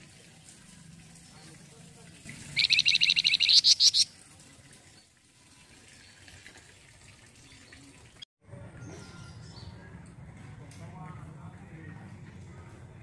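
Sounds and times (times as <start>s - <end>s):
songbird chattering trill: 2.5s - 4.1s.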